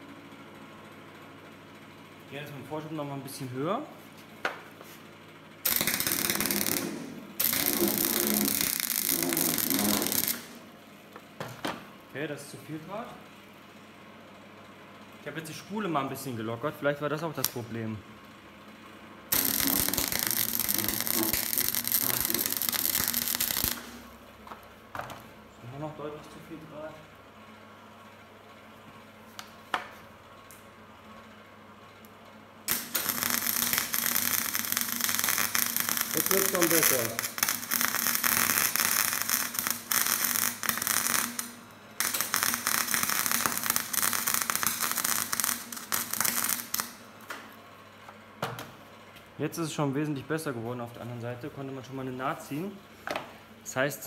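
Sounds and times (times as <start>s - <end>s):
welding arc crackling: 5.6s - 10.7s, 17.2s - 17.9s, 19.3s - 25.1s, 32.7s - 47.4s.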